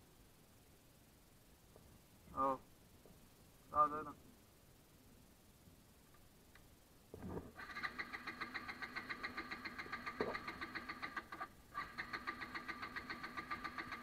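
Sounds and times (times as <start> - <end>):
motorcycle starter cranking engine: 7.6 - 14.0.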